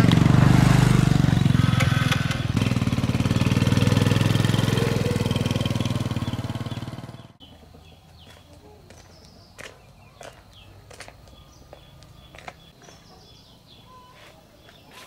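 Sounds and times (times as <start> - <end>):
motor scooter engine: 0.0 - 7.8.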